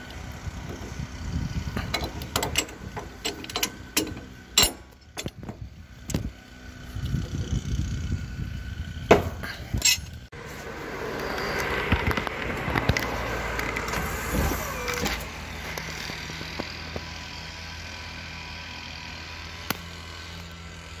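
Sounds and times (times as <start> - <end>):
hydraulic pump humming: 0.0 - 17.2
wrench clicking on metal: 1.8 - 5.4.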